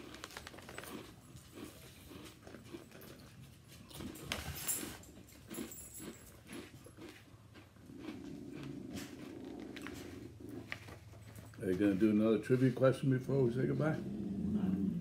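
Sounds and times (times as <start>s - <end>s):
plastic snack bag crinkling: 0.0s - 3.1s
people chewing and crunching snacks: 0.0s - 13.4s.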